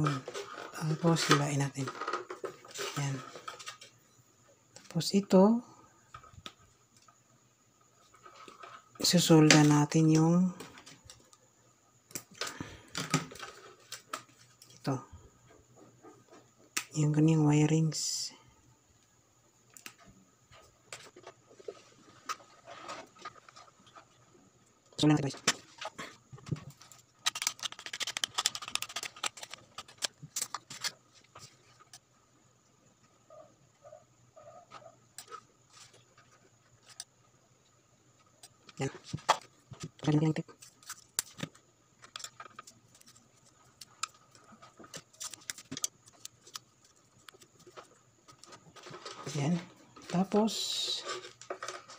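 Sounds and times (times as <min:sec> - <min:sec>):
clicks and rustles of handling wires: 0:00.0 - 0:04.0, 0:04.7 - 0:05.3, 0:08.0 - 0:17.1, 0:19.0 - 0:32.4, 0:33.0 - 0:51.9
small clicks taps and rustles: 0:25.4 - 0:32.1, 0:34.7 - 0:50.2.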